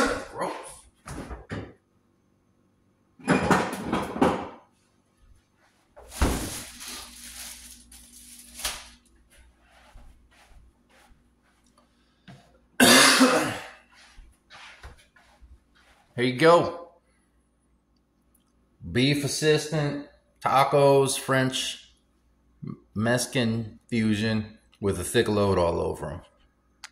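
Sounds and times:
man coughing: 0:00.0 - 0:00.7, 0:12.8 - 0:13.9.

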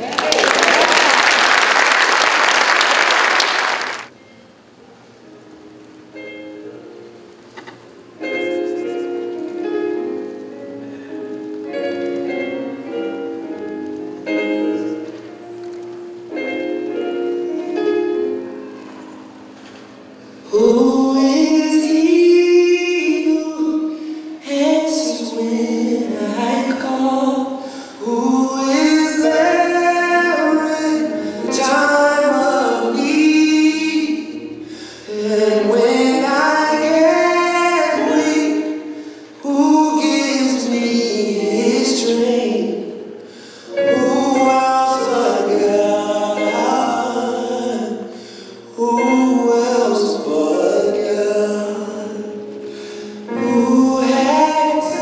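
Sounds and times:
gospel choir singing: 0:20.4 - 0:55.0.

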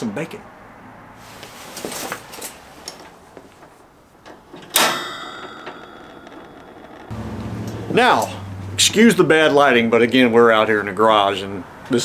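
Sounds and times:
sharp metallic clank: 0:04.5 - 0:08.5.

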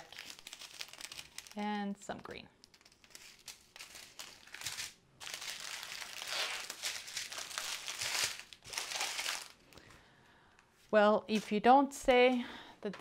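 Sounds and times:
plastic bags crinkling: 0:00.0 - 0:01.7, 0:02.6 - 0:09.8.

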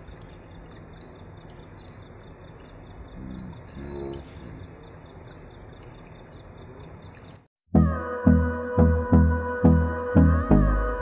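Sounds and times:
water streams splashing into basin: 0:00.0 - 0:07.5.

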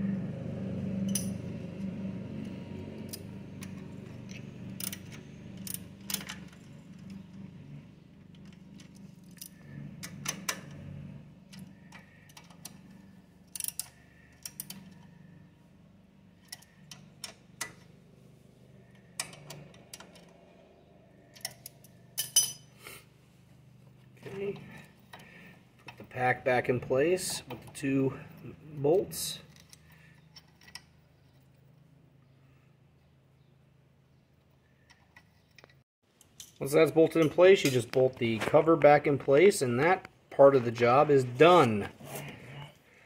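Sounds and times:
low background hum: 0:00.0 - 0:43.0
small metallic clicks and clinks: 0:01.0 - 0:01.4, 0:08.3 - 0:10.8, 0:11.5 - 0:15.1, 0:21.3 - 0:22.8, 0:34.8 - 0:37.8.

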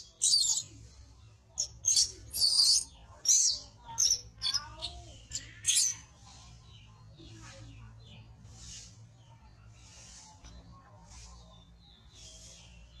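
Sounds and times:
baby monkey crying: 0:00.2 - 0:00.6.

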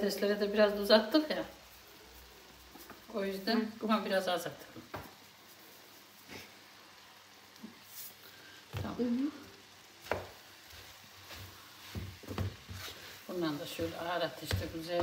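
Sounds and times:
meat sizzling in a frying pan: 0:00.0 - 0:15.0
wooden spoon stirring: 0:00.6 - 0:03.7, 0:10.0 - 0:15.0.

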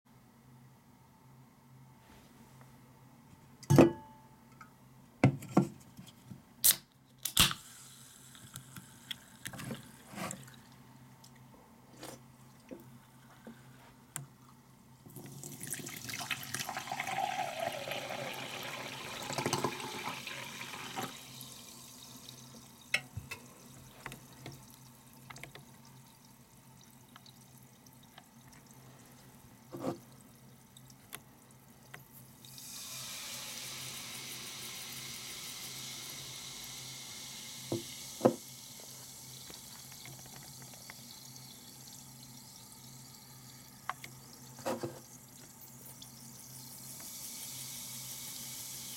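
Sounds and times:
can opening clicks and hiss: 0:06.6 - 0:10.4, 0:32.8 - 0:41.1
faint fizzing: 0:14.4 - 0:48.9
water pouring into glass: 0:15.1 - 0:23.4.

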